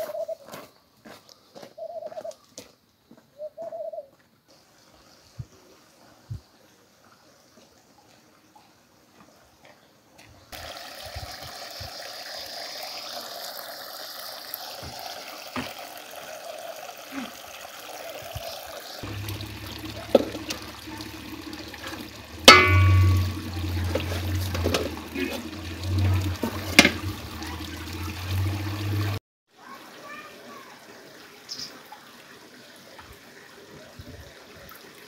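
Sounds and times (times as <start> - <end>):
water running into stone channel: 10.5 - 35.0
water trickling and splashing: 10.5 - 35.0
sharp knock: 22.5 - 23.6.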